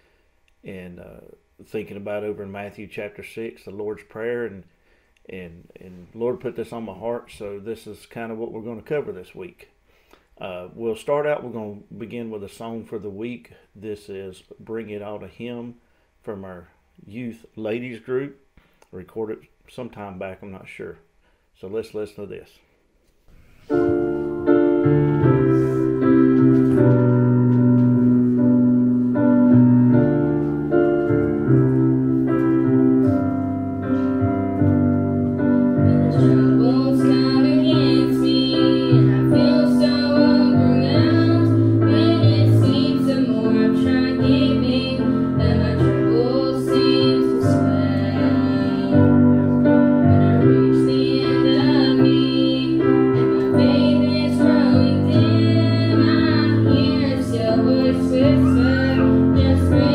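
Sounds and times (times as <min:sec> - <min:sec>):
piano: 0:23.4 - 0:59.9
young women singing: 0:35.7 - 0:59.9.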